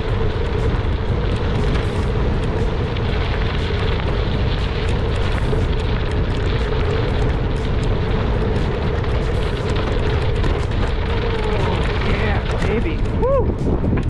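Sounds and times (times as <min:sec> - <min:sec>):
bicycle tyres rolling on gravel: 0:00.0 - 0:14.0
wind buffeting microphone: 0:00.0 - 0:14.0.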